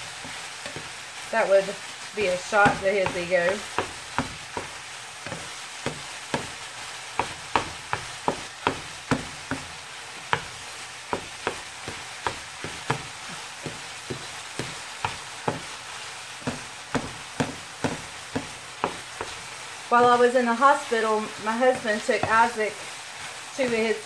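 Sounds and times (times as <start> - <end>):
sausage sizzling in frying pan: 0.0 - 24.0
utensil knocking against pan: 2.6 - 6.6, 7.2 - 9.7, 11.1 - 15.7, 16.4 - 19.4, 21.7 - 22.6.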